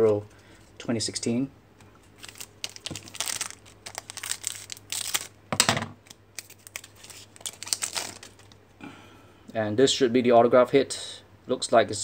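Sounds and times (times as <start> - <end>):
cards being handled: 2.0 - 8.5
foil wrapper crinkling: 2.1 - 5.4, 6.0 - 8.6.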